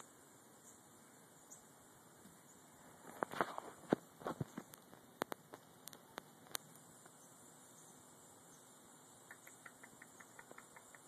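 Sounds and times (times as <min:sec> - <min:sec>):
faint steady hiss: 0:00.0 - 0:11.0
sharp clicks: 0:09.3 - 0:11.0
soft ticks: 0:09.3 - 0:11.0.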